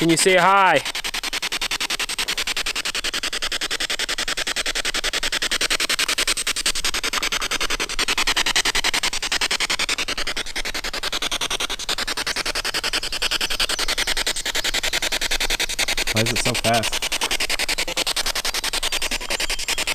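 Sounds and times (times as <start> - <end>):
radio static chopping: 16.1 - 18.3.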